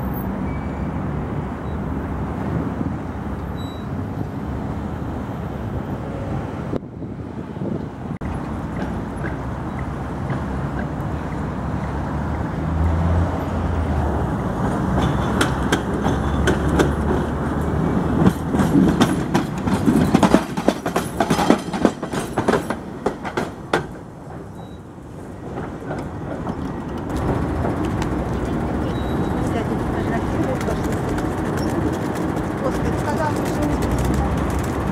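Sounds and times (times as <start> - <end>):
tram motor hum: 0.3 - 34.9
tram wheels clattering over track: 8.2 - 34.9.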